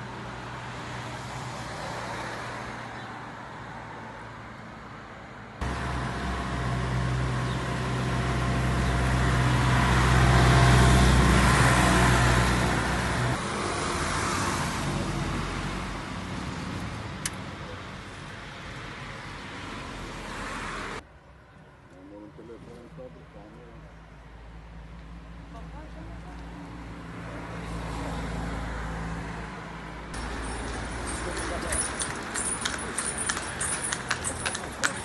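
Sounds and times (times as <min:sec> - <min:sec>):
vehicle engine passing: 0:05.6 - 0:17.1.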